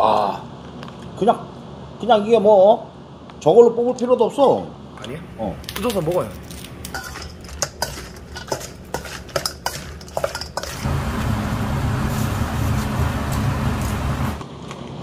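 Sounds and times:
crab pieces knocking metal bowl: 0:05.7 - 0:10.8
pot boiling and bubbling: 0:06.6 - 0:14.9.

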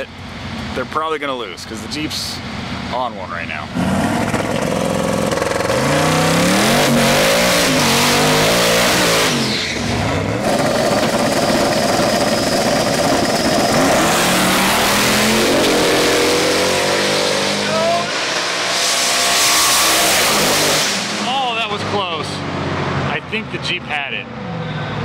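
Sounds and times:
second car engine: 0:00.0 - 0:25.0
car engine revving: 0:02.2 - 0:25.0.

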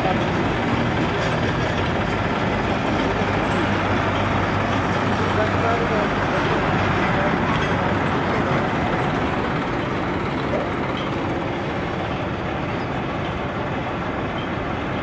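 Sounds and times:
thresher running: 0:00.0 - 0:15.0
tractor engine: 0:00.0 - 0:15.0.

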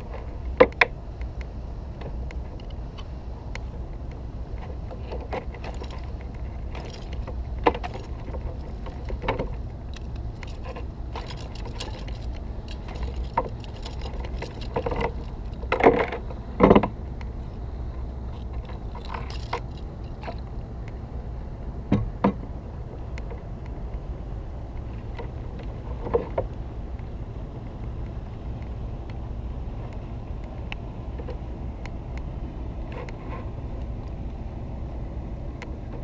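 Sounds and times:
wind rumble on microphone: 0:00.0 - 0:36.0
knocks and rattles against kayak: 0:04.5 - 0:17.0, 0:21.9 - 0:22.5.

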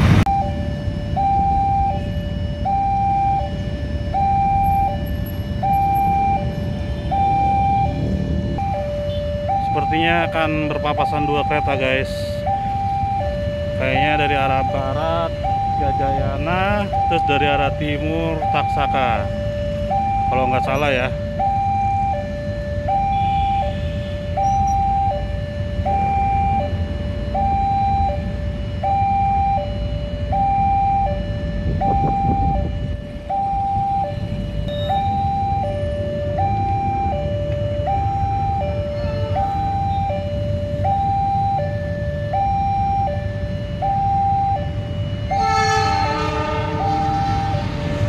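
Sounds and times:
motorcycle and traffic engines rumbling: 0:00.0 - 0:48.0
two-tone level crossing alarm: 0:00.2 - 0:48.0
locomotive horn: 0:23.0 - 0:24.5, 0:38.9 - 0:40.1, 0:45.2 - 0:48.0.

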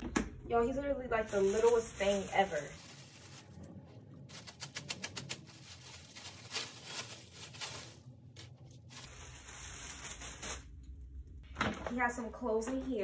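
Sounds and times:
plastic wrapping crinkling: 0:01.2 - 0:11.0.

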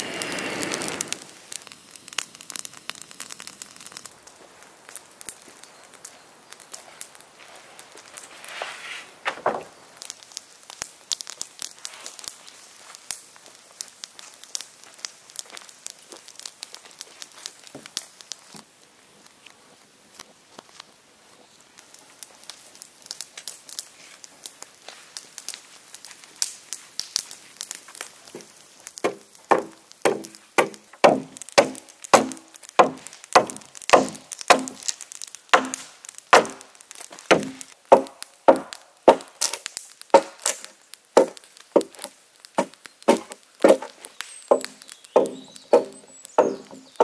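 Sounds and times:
axe chopping wooden plank: 0:29.0 - 0:34.8, 0:35.5 - 0:36.6, 0:37.3 - 0:39.3, 0:40.2 - 0:40.6, 0:41.2 - 0:43.9, 0:44.5 - 0:46.8.

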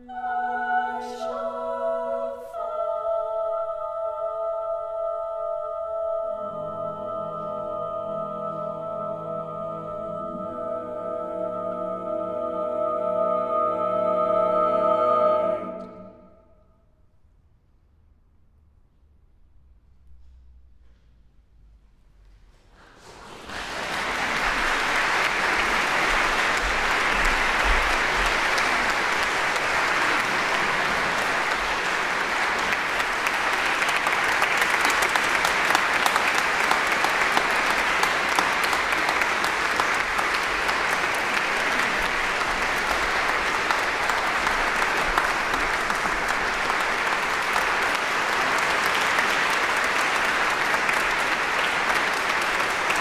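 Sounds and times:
audience applause: 0:22.8 - 0:53.0.

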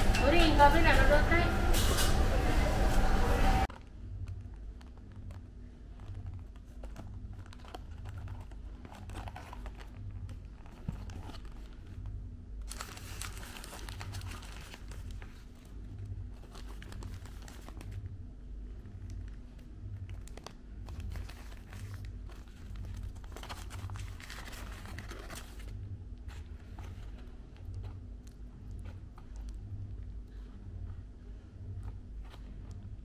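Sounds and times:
paper and cardboard box rustling: 0:05.9 - 0:12.0, 0:12.7 - 0:15.7, 0:16.4 - 0:18.0, 0:20.2 - 0:27.3.

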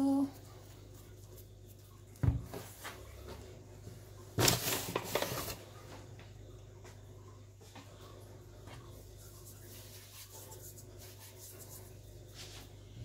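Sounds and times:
dough thumping on counter: 0:02.2 - 0:02.6
noodles rustling and scraping: 0:04.4 - 0:05.7.

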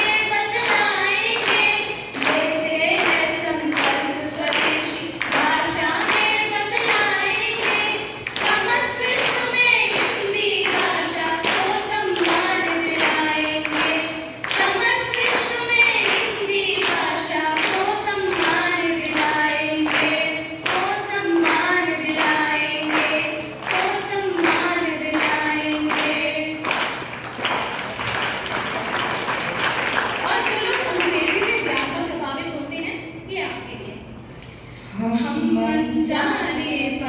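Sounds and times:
women singing over loudspeaker: 0:00.0 - 0:26.8, 0:34.9 - 0:37.0
hand-clapping steady beat: 0:00.0 - 0:32.0
applause: 0:00.0 - 0:32.1.

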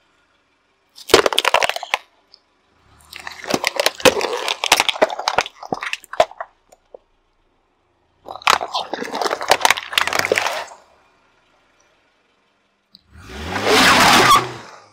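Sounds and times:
tyre crushing plastic cups: 0:01.0 - 0:02.1, 0:03.1 - 0:07.0, 0:08.3 - 0:10.8.

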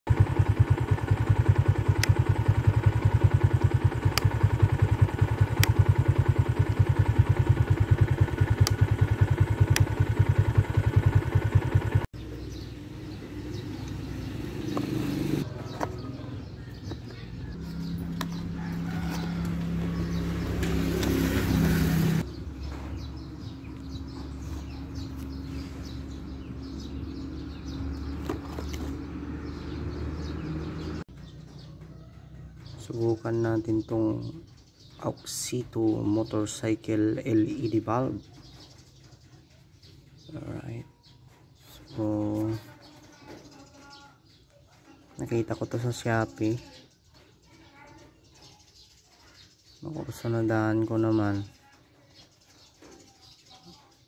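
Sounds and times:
motorcycle engine running: 0:00.1 - 0:36.6
sharp ticks: 0:01.7 - 0:10.4.

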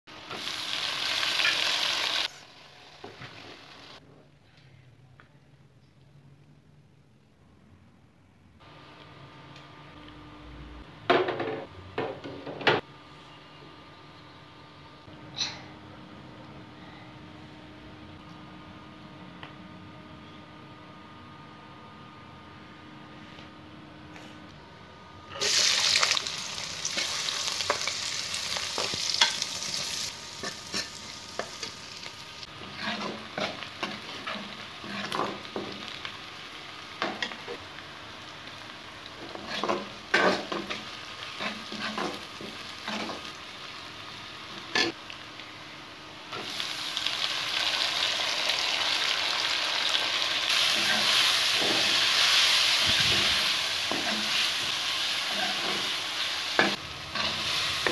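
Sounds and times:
onions sizzling in hot oil: 0:00.1 - 0:04.0, 0:25.4 - 0:57.9.

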